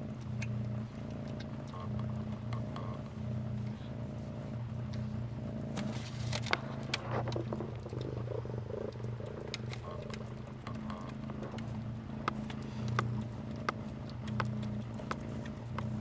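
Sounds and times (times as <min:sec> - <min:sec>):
cat purring: 0:00.0 - 0:16.0
handling clicks and rustles: 0:05.7 - 0:16.0.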